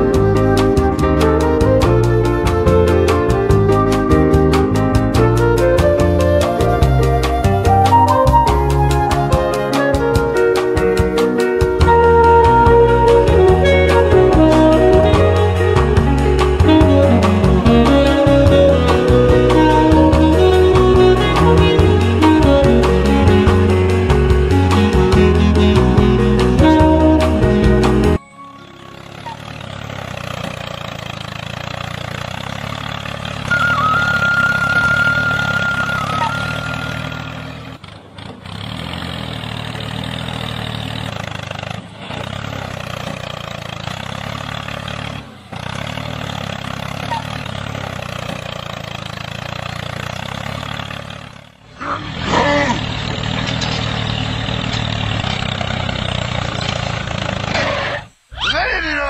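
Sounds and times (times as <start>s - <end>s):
high whistle-like tone: 28.2s - 29.5s, 33.5s - 37.3s
toy tractor engine drone: 28.2s - 58.7s.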